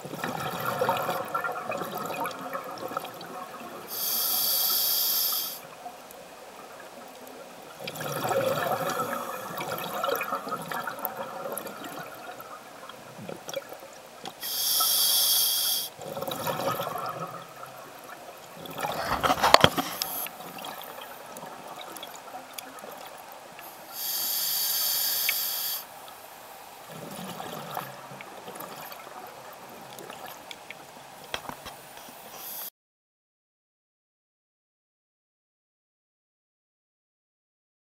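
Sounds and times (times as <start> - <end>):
bubbling clatter: 0.1 - 3.8, 16.0 - 17.8, 18.6 - 22.3
regulator inhale hiss: 3.9 - 5.8, 14.4 - 16.0, 19.8 - 20.4, 23.6 - 26.4, 31.8 - 32.7
diver exhaling rushing bubbles: 7.9 - 12.4, 18.6 - 21.0.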